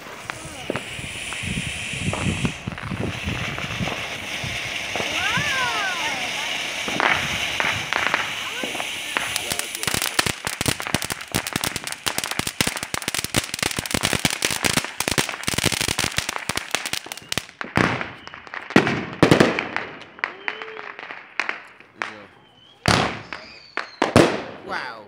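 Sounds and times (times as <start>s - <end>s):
firework pops: 0.0s - 20.8s
firework sparks crackling: 0.0s - 25.0s.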